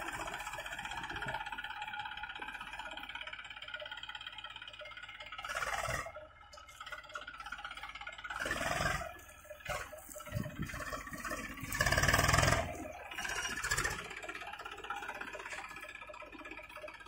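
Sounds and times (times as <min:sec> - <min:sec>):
tractor diesel engine under load: 0:00.0 - 0:17.0.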